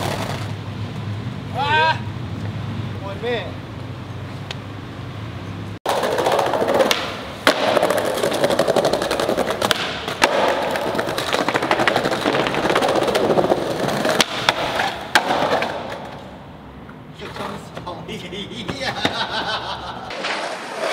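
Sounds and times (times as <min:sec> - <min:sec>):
skateboard wheels rolling on tiles: 0:00.0 - 0:01.1, 0:05.9 - 0:16.4, 0:17.2 - 0:20.9
skateboard clacks and landings: 0:05.9 - 0:16.2, 0:20.1 - 0:20.9.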